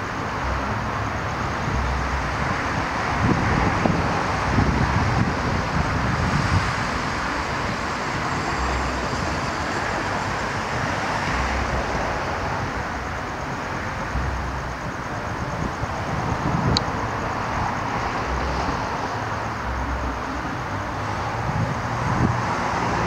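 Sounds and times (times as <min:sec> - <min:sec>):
distant road traffic: 0:00.0 - 0:23.0
wind rumbling on microphone: 0:00.0 - 0:23.0.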